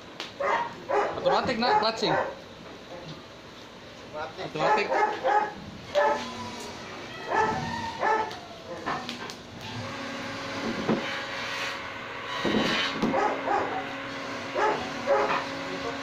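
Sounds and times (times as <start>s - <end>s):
dog barking: 0.4s - 2.4s, 4.6s - 6.3s, 7.3s - 8.9s, 13.1s - 15.4s.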